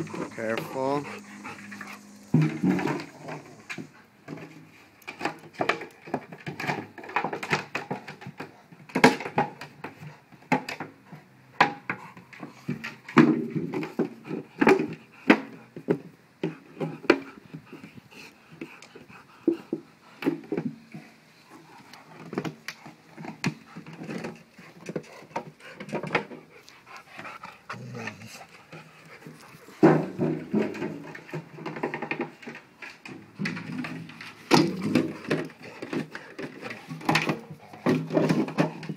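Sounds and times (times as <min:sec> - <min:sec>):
dog panting: 0:00.0 - 0:04.0, 0:16.6 - 0:30.2.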